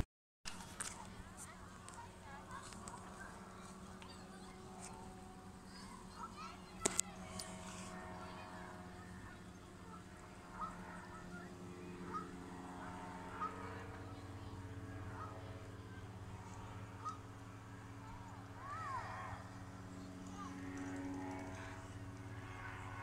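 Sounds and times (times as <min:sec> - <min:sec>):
distant paraglider engine droning: 0:00.0 - 0:23.0
bird calls: 0:12.1 - 0:12.4, 0:17.0 - 0:17.3.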